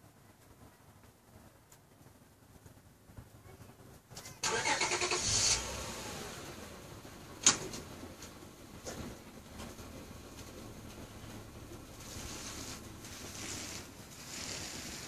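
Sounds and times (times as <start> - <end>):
engine starting and running: 4.3 - 15.0.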